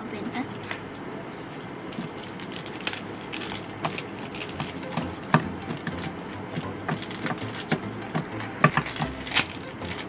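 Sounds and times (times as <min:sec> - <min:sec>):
plastic wrapper crinkling: 0:01.9 - 0:10.0
background hiss: 0:02.7 - 0:10.0.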